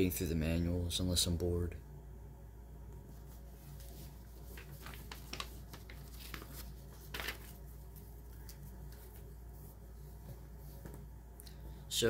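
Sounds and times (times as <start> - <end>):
paper crinkling and rustling: 3.2 - 11.0.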